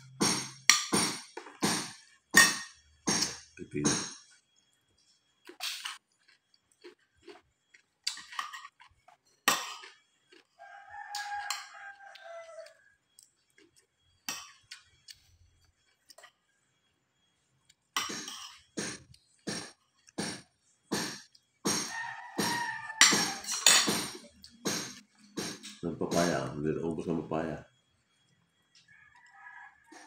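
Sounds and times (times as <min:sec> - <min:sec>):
cutlery clinking on a plate: 0:21.8 - 0:24.8.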